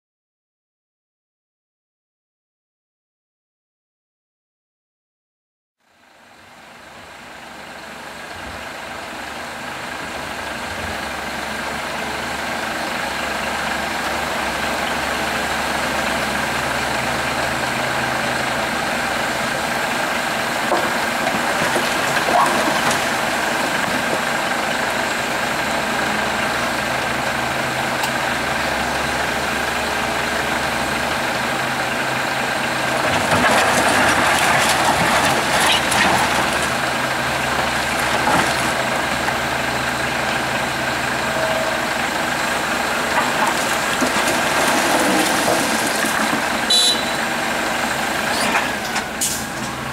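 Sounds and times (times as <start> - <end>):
truck diesel idling: 5.8 - 49.9
excavator diesel engine whining: 6.2 - 49.9
concrete rubble clattering: 20.6 - 24.5, 32.9 - 39.4, 42.9 - 46.8.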